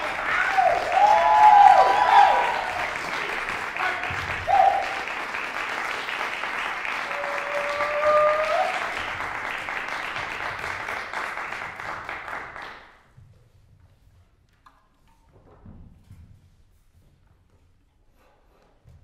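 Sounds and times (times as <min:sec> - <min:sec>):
listener cheering: 0:00.0 - 0:05.3, 0:06.8 - 0:09.2
audience applauding: 0:00.0 - 0:13.0.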